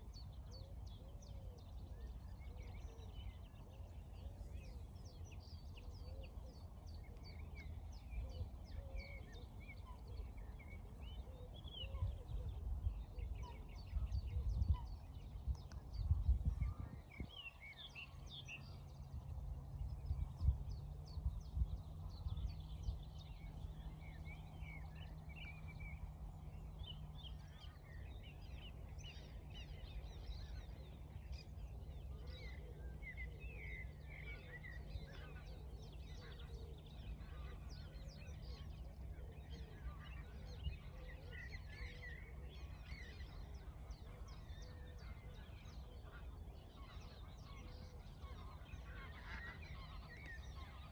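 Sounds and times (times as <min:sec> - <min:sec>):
birds chirping: 0:00.0 - 0:50.9
steady low rumble: 0:01.8 - 0:50.9.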